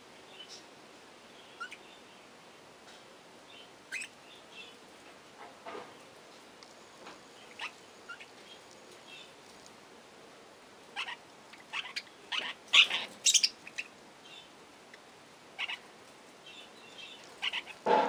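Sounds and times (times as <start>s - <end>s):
budgerigars chirping: 1.6s - 1.8s, 3.9s - 4.8s, 7.4s - 9.3s, 11.0s - 14.5s, 15.6s - 15.8s, 16.5s - 17.8s.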